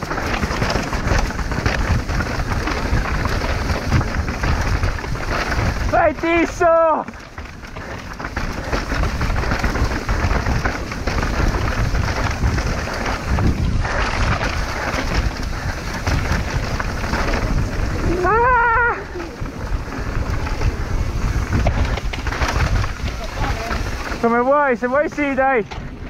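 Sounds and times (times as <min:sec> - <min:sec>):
bike tyres rattling over rough trail: 0:00.0 - 0:26.0
wind buffeting microphone: 0:00.0 - 0:26.0
person shouting: 0:18.0 - 0:19.3.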